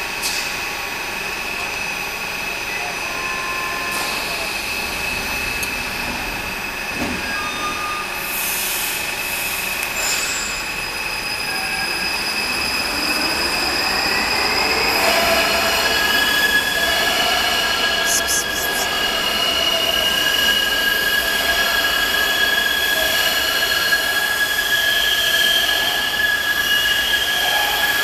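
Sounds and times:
train electrical hum and whine: 0:00.0 - 0:28.0.

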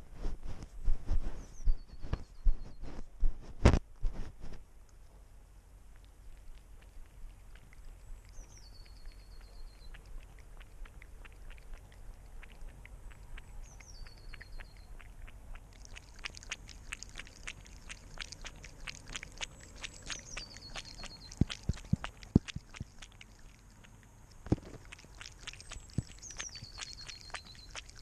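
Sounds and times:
cat lapping water: 0:05.8 - 0:28.0.

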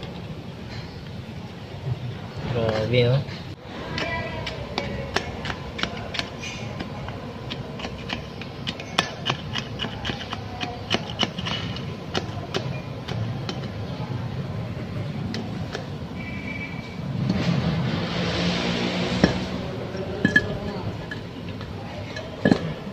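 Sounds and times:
sharp metallic taps: 0:03.9 - 0:13.9, 0:15.3 - 0:17.5, 0:19.1 - 0:22.9.

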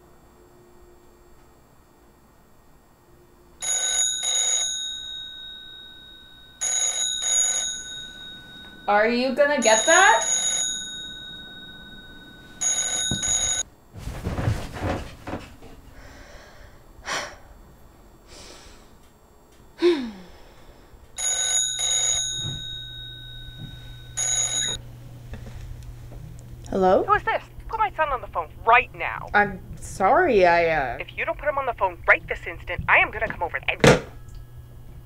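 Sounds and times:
telephone ringing: 0:03.6 - 0:13.7, 0:21.2 - 0:24.8.

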